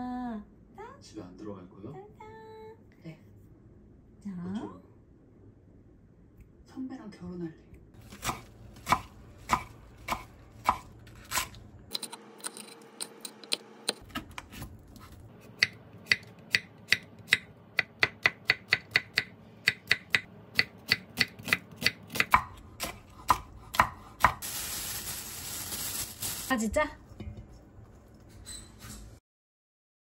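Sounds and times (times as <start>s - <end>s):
knife chopping on cutting board: 8.1s - 11.6s, 13.4s - 24.4s.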